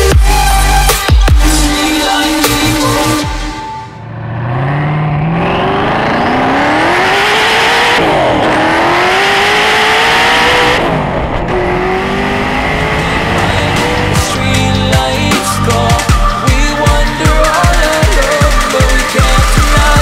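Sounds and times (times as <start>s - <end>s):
car engine accelerating hard: 4.0s - 14.8s.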